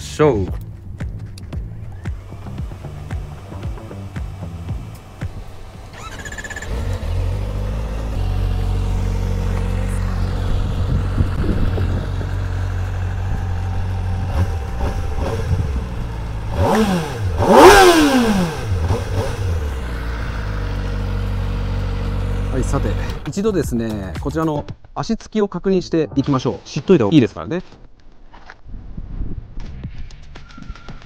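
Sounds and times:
motorcycle engine idling: 0:00.6 - 0:23.8
engine revving: 0:01.2 - 0:23.3.

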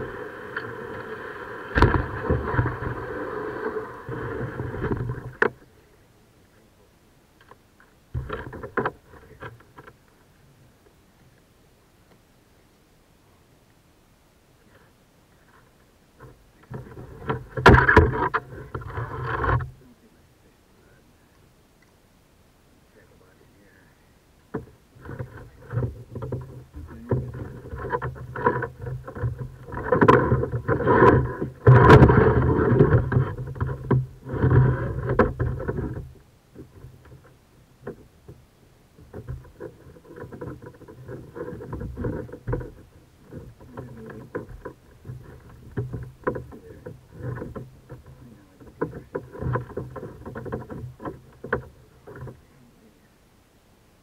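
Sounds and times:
paddle knocking against hull: 0:01.7 - 0:05.7, 0:08.1 - 0:10.0, 0:16.2 - 0:19.8, 0:24.5 - 0:38.4, 0:39.0 - 0:52.5.

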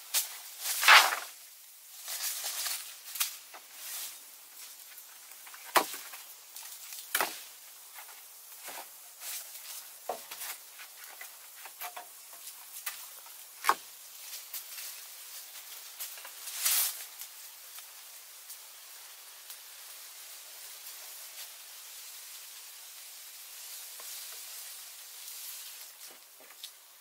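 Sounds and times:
rustle: 0:00.0 - 0:27.0
wooden poles knocking together: 0:05.5 - 0:06.2.

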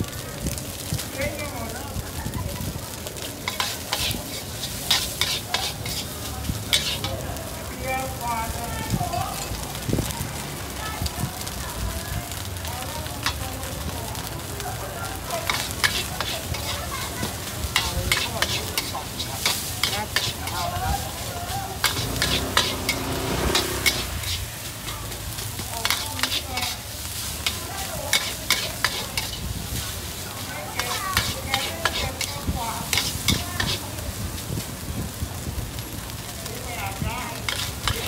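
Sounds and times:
food sizzling: 0:00.0 - 0:38.0
spatulas scraping a wok: 0:03.1 - 0:07.6, 0:15.2 - 0:34.7, 0:37.1 - 0:38.0.

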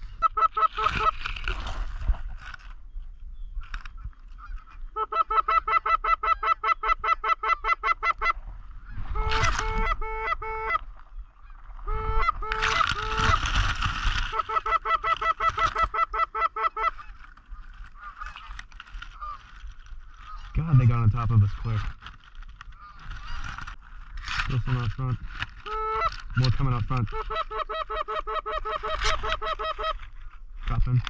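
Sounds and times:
goose clucking: 0:00.0 - 0:01.2, 0:04.4 - 0:19.4, 0:25.6 - 0:30.1
goose honking: 0:04.4 - 0:13.7, 0:14.3 - 0:17.2.

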